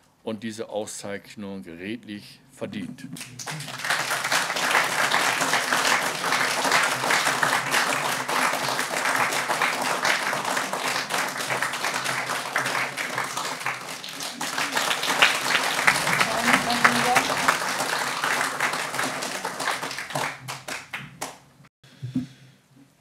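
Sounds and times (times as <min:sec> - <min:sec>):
audience applauding: 0:03.2 - 0:21.4.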